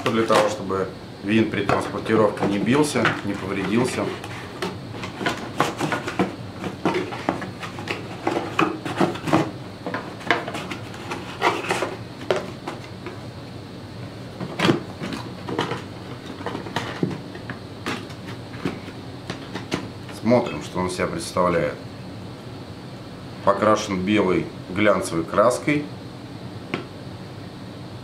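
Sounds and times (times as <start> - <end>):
cardboard box rustling and scraping: 2.4 - 13.0.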